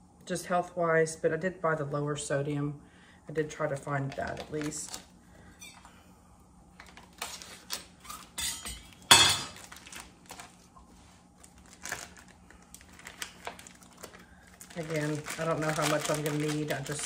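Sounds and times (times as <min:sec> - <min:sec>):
plastic package ripping open: 0:04.2 - 0:05.1, 0:06.8 - 0:08.4, 0:09.0 - 0:10.8, 0:11.4 - 0:17.0.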